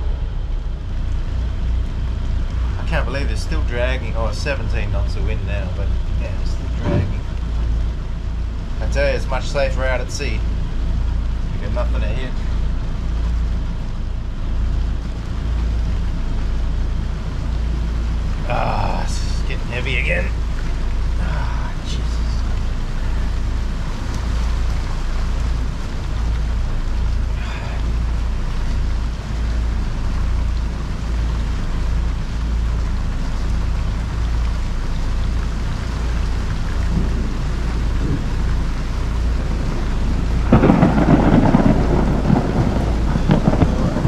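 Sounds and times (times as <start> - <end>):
rain falling: 0.0 - 44.0
wind buffeting microphone: 0.8 - 9.4, 35.2 - 44.0.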